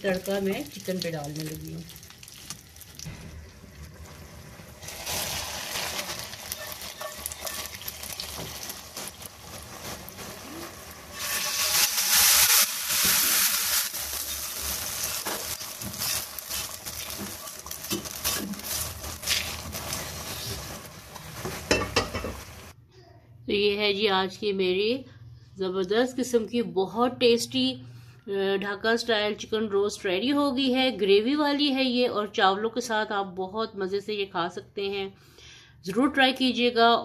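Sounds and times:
hot oil hissing into liquid: 4.7 - 21.1
wooden spoon stirring steel pot: 5.8 - 12.4, 14.0 - 22.7.

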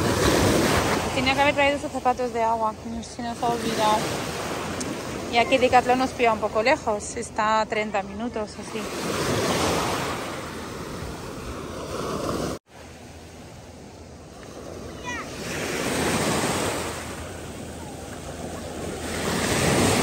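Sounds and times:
waves washing onto stony beach: 0.0 - 2.2, 14.3 - 20.0.

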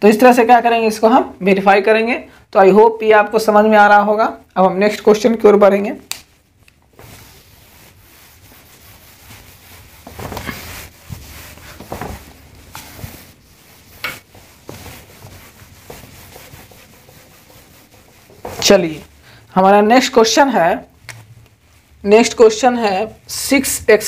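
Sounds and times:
eraser rubbing whiteboard: 6.9 - 19.2.

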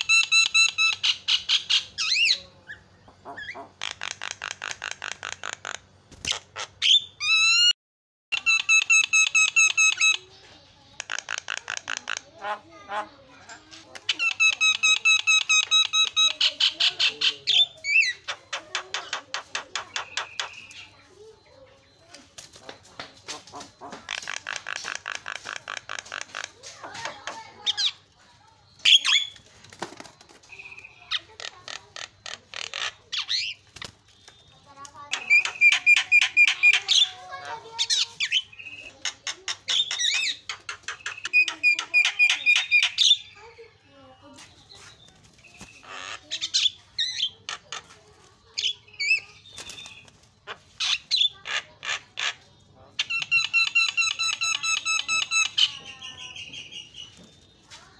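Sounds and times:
bird chattering and squawking: 0.0 - 7.7, 8.3 - 57.9
wing flapping: 29.2 - 30.7.

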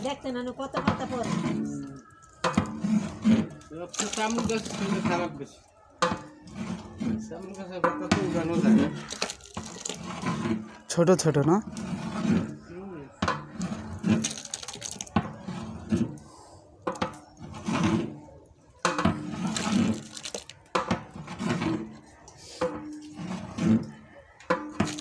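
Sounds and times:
metal ladle scraping pot: 0.0 - 25.0
thick mixture sloshing: 0.0 - 25.0.

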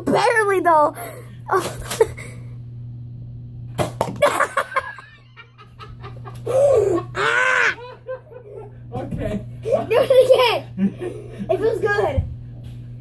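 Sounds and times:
person crying out high-pitched: 6.6 - 8.0.

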